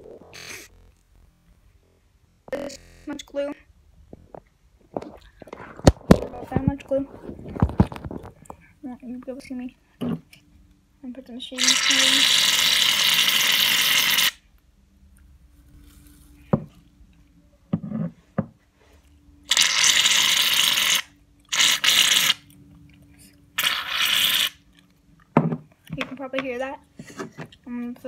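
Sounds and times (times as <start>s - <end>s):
aerosol can spraying: 23.6s - 24.6s.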